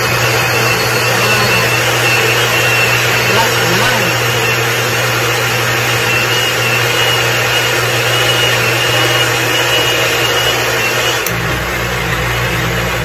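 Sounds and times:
blender motor running: 0.0s - 13.0s.

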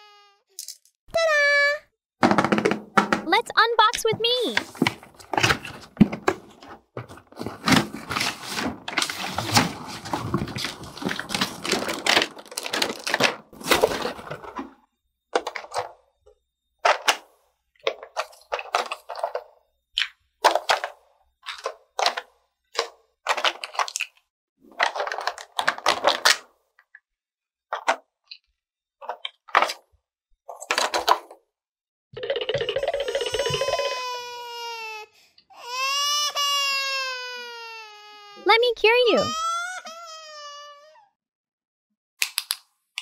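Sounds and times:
plastic tray crinkling: 4.6s - 14.7s, 24.7s - 26.4s.

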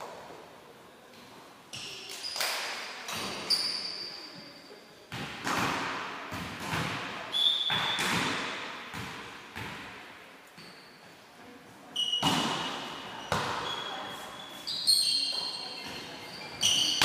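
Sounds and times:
shoes squeaking on court: 1.7s - 4.7s, 7.3s - 8.4s, 10.5s - 11.2s, 11.9s - 17.0s
volleyball hits echoing: 5.1s - 10.2s, 12.2s - 13.8s.

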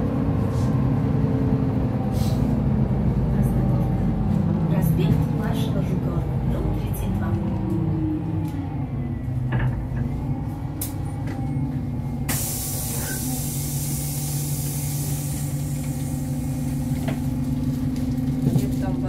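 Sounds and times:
bus engine hum: 0.0s - 19.0s
compressed air hissing: 12.3s - 16.4s.

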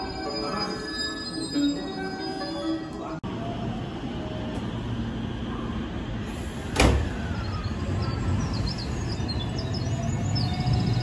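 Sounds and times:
train low hum: 0.0s - 11.0s
train doors shutting thud: 6.3s - 7.5s.

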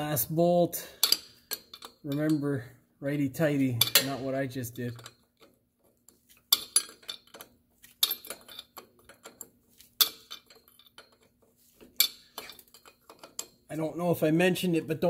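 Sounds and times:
wrench clinking on bolt: 1.0s - 2.6s, 3.8s - 5.6s, 6.5s - 13.6s.

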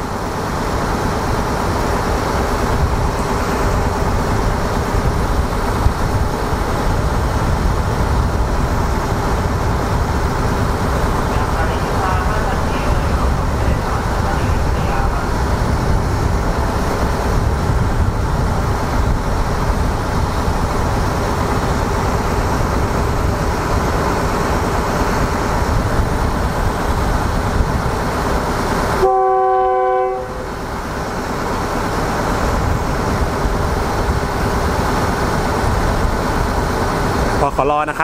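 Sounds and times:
diesel railcar engine rumble: 0.0s - 38.0s
train horn blast: 29.0s - 30.5s.

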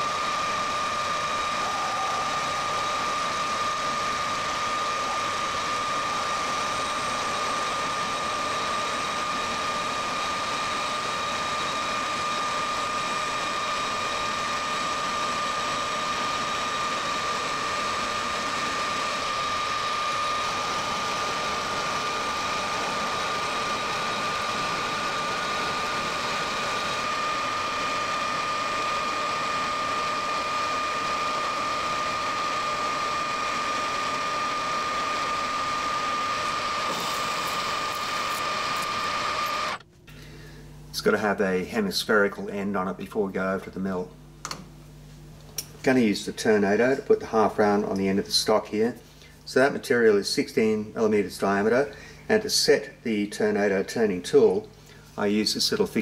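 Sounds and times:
metal lathe whining: 0.0s - 39.9s
hiss of cutting tool: 0.1s - 9.0s, 36.2s - 39.6s.

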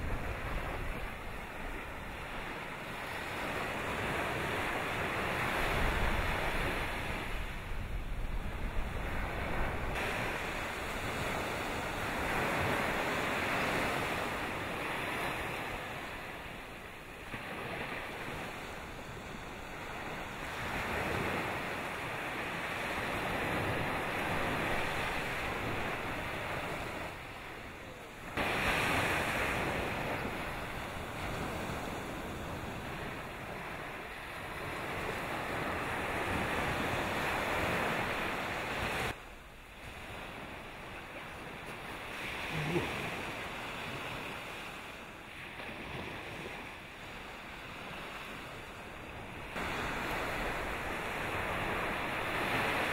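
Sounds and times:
sea waves rushing: 0.0s - 52.9s
wind: 0.0s - 52.9s.

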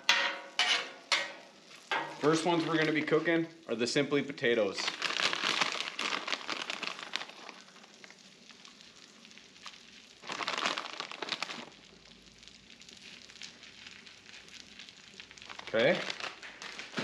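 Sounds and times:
hash browns sizzling on griddle: 0.0s - 4.9s, 7.3s - 10.4s, 11.2s - 17.0s
plastic bag crinkling: 2.2s - 3.4s, 4.6s - 12.1s, 13.0s - 17.0s.

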